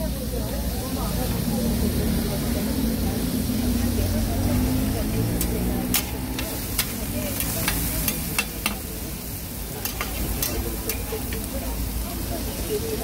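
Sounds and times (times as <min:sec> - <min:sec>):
food sizzling: 0:00.0 - 0:13.0
metal spatula scraping griddle: 0:05.2 - 0:11.6.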